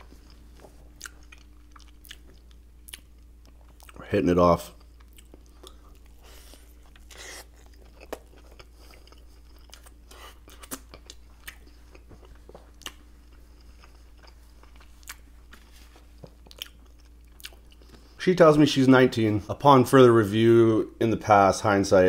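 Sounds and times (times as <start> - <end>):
biting into a burger: 0.0 - 4.0, 4.7 - 18.2
chewing with wet mouth clicks: 0.0 - 4.0, 4.7 - 18.2.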